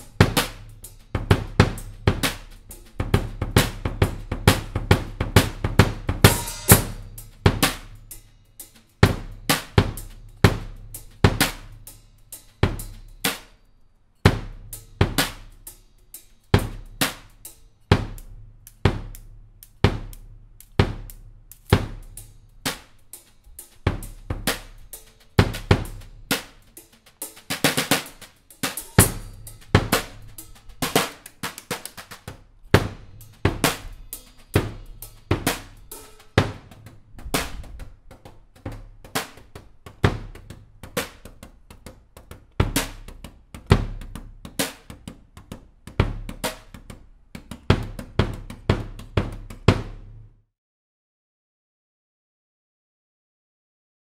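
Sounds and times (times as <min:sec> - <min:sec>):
bass drum kicks: 0:00.0 - 0:02.4, 0:03.0 - 0:07.8, 0:32.7 - 0:35.8
snare drum hits: 0:00.0 - 0:08.0, 0:09.0 - 0:11.8, 0:27.3 - 0:41.4, 0:42.6 - 0:45.1
cymbal crash: 0:06.2 - 0:07.3, 0:28.7 - 0:31.1.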